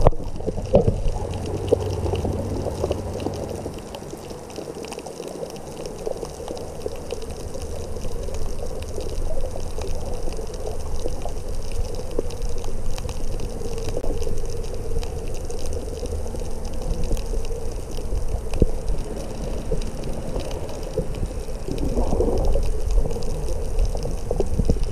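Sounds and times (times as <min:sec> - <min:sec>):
faint clicks and crackles: 0:00.0 - 0:24.9
underwater rumble of moving water: 0:00.0 - 0:24.9
water rush: 0:00.0 - 0:24.9.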